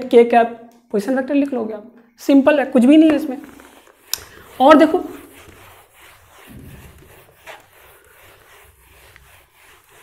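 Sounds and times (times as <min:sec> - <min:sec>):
duster wiping a whiteboard: 0:02.8 - 0:10.0.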